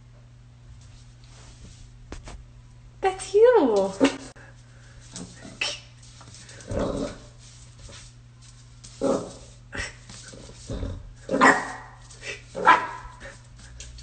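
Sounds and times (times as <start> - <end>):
puppy barking high yaps: 11.3 - 12.0, 12.6 - 13.2.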